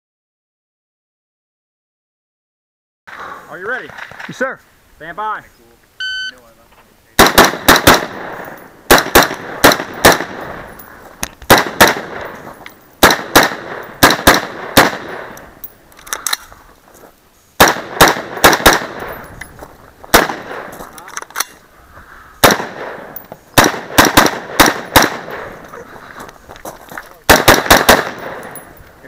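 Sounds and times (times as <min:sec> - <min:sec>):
rifle firing rapid shots: 0:07.2 - 0:10.6, 0:11.5 - 0:12.4, 0:13.0 - 0:15.4, 0:17.6 - 0:19.2, 0:20.1 - 0:20.7, 0:22.4 - 0:23.0, 0:23.6 - 0:25.6, 0:27.3 - 0:28.6.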